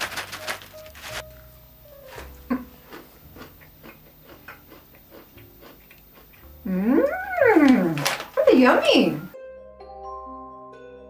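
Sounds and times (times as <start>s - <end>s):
seeds rattling from plastic bag: 0.0s - 1.2s
crunchy chewing: 2.2s - 6.5s.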